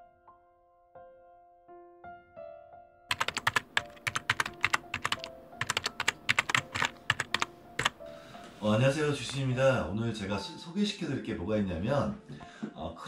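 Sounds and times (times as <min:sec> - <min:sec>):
soft piano music: 0:00.0 - 0:13.0
keyboard typing clicks: 0:03.1 - 0:08.0.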